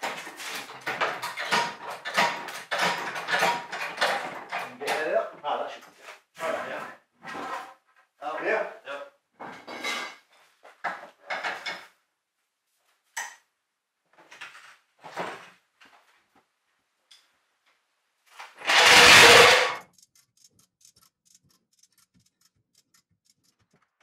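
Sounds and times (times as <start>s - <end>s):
trolley jack clanking and scraping: 0.0s - 5.0s, 18.6s - 21.9s
fast light ticks: 19.8s - 24.0s.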